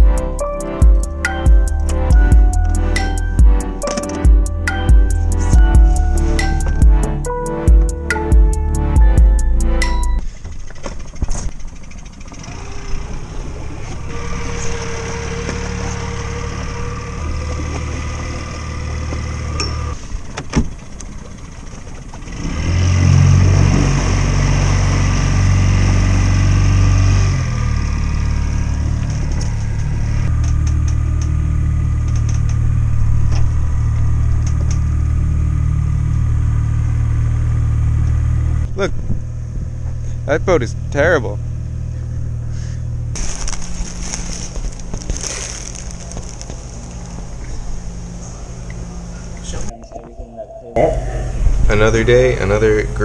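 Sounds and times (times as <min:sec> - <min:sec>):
outboard motor running: 0:10.2 - 0:49.7.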